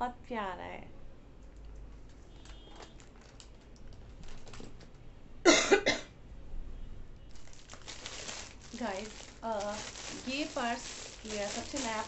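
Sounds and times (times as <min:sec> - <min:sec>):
plastic wrapping crinkling: 0:02.0 - 0:04.9, 0:07.3 - 0:12.0
woman coughing: 0:05.5 - 0:06.1.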